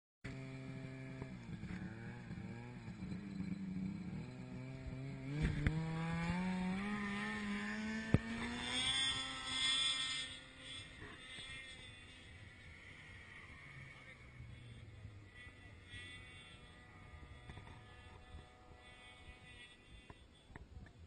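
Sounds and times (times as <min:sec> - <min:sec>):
snowmobile engine running: 0:00.3 - 0:21.0.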